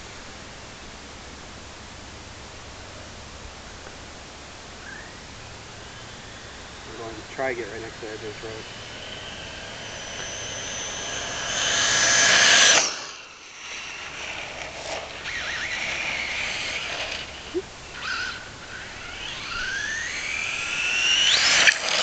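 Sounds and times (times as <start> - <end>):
rc truck electric motor whining: 4.8 - 22.0.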